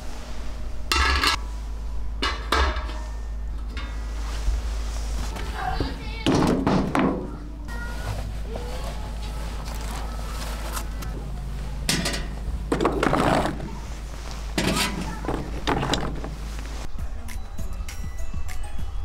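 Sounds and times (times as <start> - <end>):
low steady hum: 0.0 - 19.0
indistinct voices: 5.2 - 17.9.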